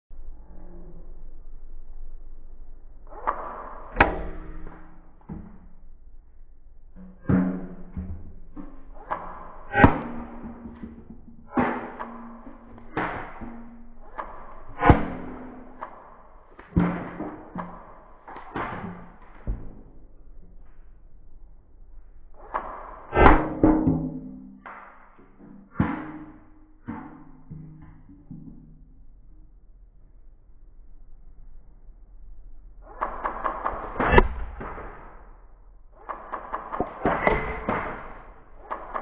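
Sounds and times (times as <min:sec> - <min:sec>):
deep ringing thumps: 0:03.8 - 0:18.3.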